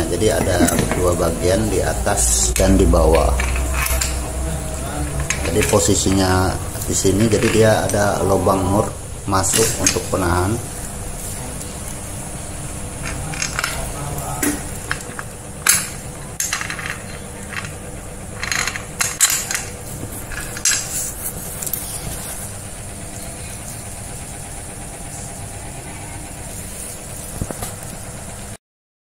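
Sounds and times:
low background hum: 0:00.0 - 0:28.6
metal parts clinking: 0:02.6 - 0:04.4, 0:07.0 - 0:08.1, 0:13.0 - 0:14.0, 0:14.8 - 0:22.0.

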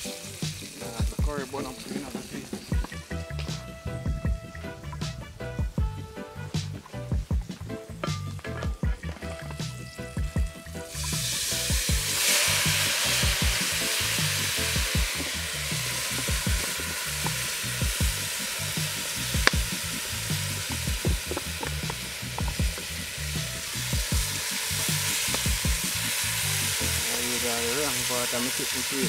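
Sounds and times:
hot oil sizzling in a pot: 0:00.0 - 0:05.8, 0:09.3 - 0:29.0
utensil knocking against pot: 0:08.0 - 0:09.7, 0:20.7 - 0:22.9.

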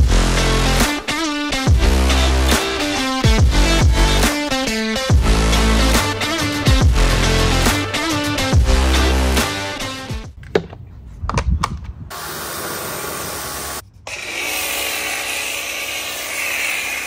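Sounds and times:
pressure washer spraying: 0:12.1 - 0:13.8.

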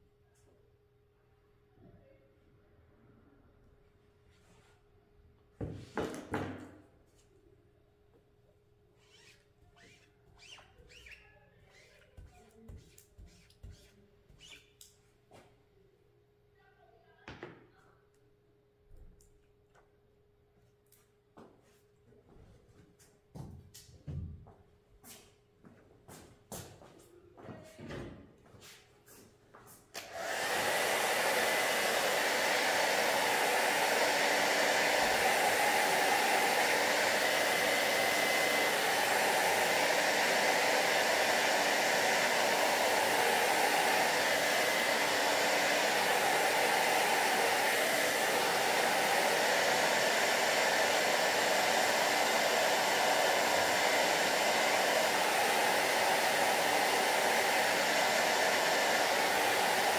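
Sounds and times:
hair dryer blowing: 0:09.8 - 0:14.6, 0:29.9 - 0:59.9.

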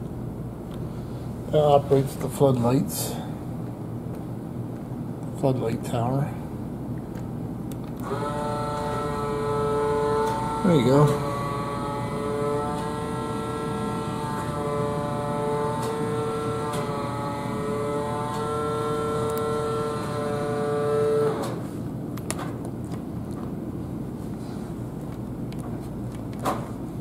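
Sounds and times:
electric buzz: 0:08.0 - 0:21.6.

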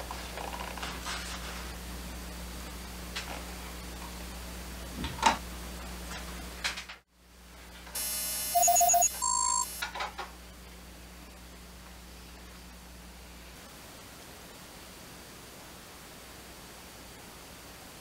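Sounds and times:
buzzy electronic tone: 0:08.0 - 0:09.8
electronic beeps: 0:08.0 - 0:09.8.

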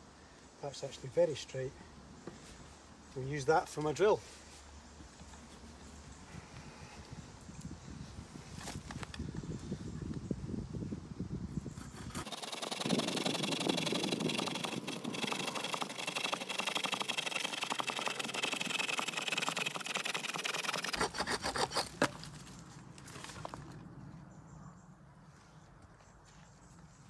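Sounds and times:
knife rasping against stick: 0:11.7 - 0:22.1.

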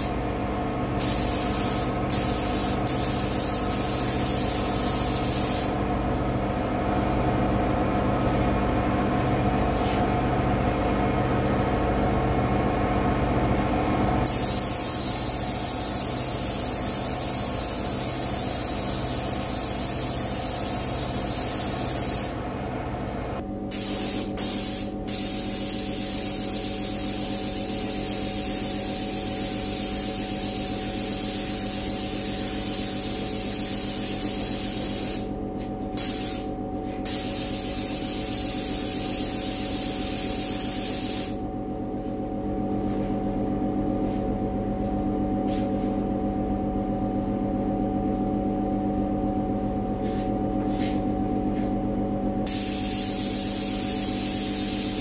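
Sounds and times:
steady hum: 0:00.0 - 0:55.0
spray gun hissing: 0:01.0 - 0:05.8, 0:14.3 - 0:22.3, 0:23.7 - 0:30.1, 0:30.8 - 0:35.3, 0:36.0 - 0:36.4, 0:37.0 - 0:41.4, 0:52.5 - 0:55.0.

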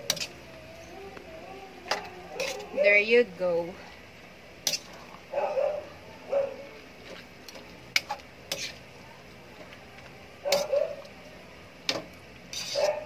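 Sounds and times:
utensil stirring noodles in a wok: 0:00.0 - 0:00.5, 0:01.9 - 0:03.2, 0:03.8 - 0:05.3, 0:06.8 - 0:13.0.

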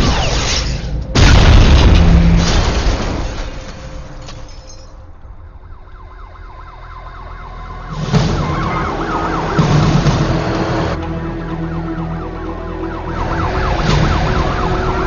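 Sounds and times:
loud crash: 0:00.0 - 0:04.2
whooping siren alarm: 0:05.4 - 0:15.0.

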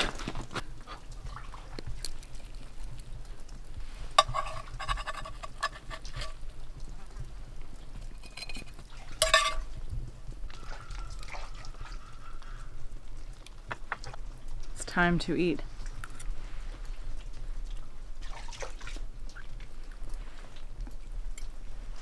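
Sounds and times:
metal spatula scraping skillet: 0:04.0 - 0:06.4, 0:08.1 - 0:09.7
short ringing clinks: 0:08.2 - 0:09.7.

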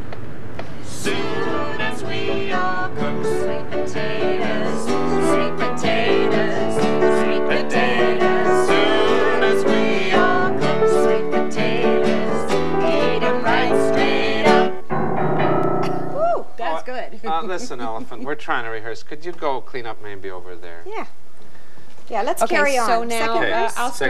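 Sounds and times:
upbeat song with guitar and piano: 0:01.0 - 0:16.7.

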